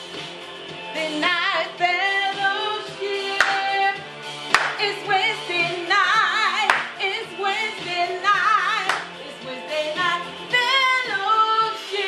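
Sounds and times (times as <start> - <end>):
backing music: 0.0 - 12.0
woman singing gospel: 1.0 - 4.0, 4.6 - 12.0
hand claps: 3.4 - 3.8, 4.5 - 5.0, 6.6 - 7.0, 8.8 - 9.2.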